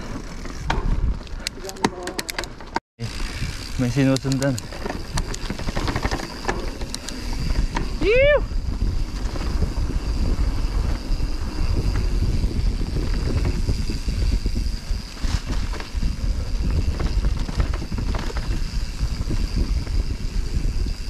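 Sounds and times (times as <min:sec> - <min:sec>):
bike rumbling on dirt trail: 0:00.0 - 0:21.0
wind buffeting microphone: 0:03.2 - 0:21.0
clicks and rattles: 0:04.0 - 0:07.9.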